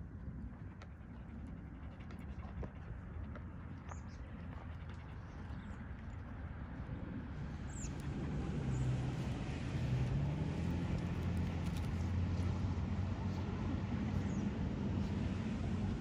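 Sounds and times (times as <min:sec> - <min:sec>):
car engine passing: 0:07.2 - 0:16.0.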